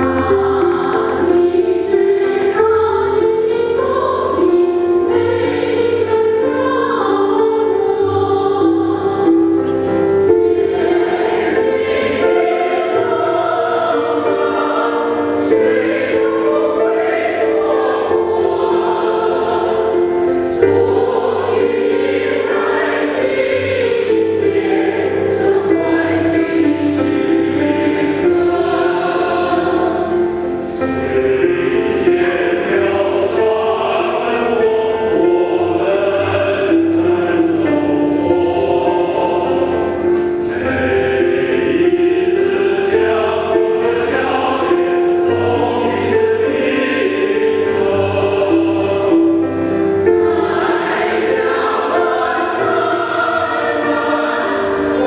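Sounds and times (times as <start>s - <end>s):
mixed choir singing in harmony: 0.0s - 55.0s.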